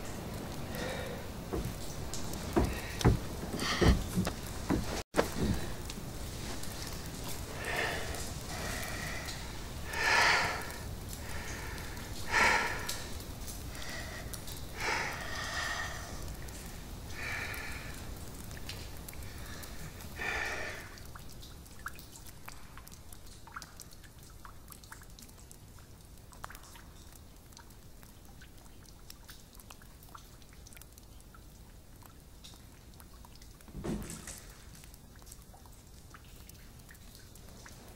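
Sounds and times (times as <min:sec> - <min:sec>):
faint drips: 0:00.0 - 0:37.9.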